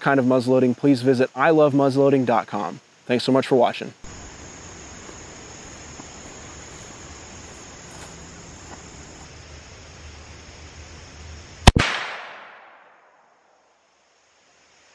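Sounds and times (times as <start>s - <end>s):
faint outdoor background hiss: 0.0s - 14.9s
gunshot with echo: 11.7s - 12.9s.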